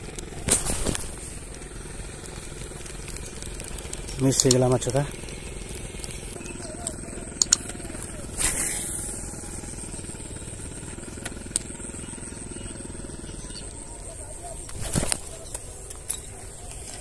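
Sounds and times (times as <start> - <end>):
faint high whine: 0.0 - 17.0
fishing rod swishing: 8.2 - 9.2.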